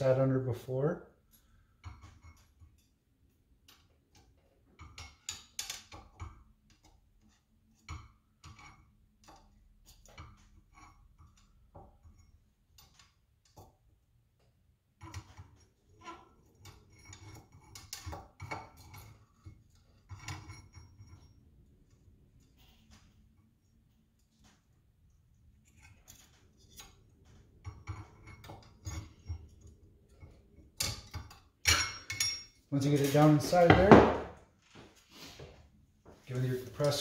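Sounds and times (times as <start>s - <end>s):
screwdriver clicking and scraping metal: 3.6s - 13.7s, 15.0s - 21.4s.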